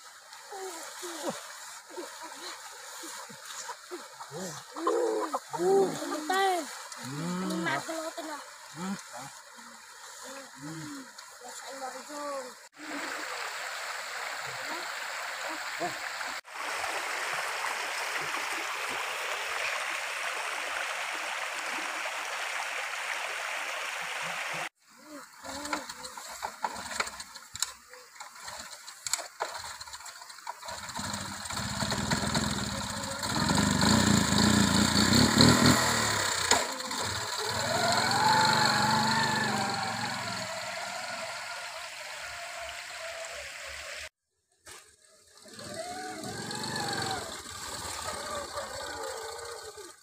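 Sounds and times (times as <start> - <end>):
stream running: 0.0 - 50.0
motorbike engine revving: 30.7 - 41.5, 45.5 - 49.4.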